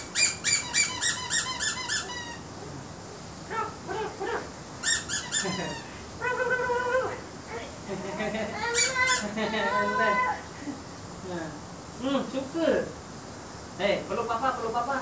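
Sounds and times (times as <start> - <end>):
squeaky toy squeaking: 0.0 - 2.4, 4.8 - 5.8, 8.7 - 9.2.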